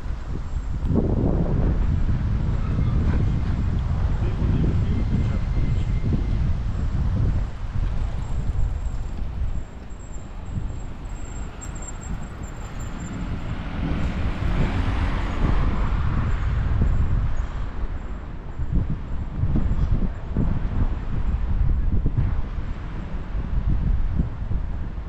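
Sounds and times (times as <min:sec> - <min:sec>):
traffic rumble: 0:00.0 - 0:25.0
vehicle passing: 0:10.3 - 0:16.8.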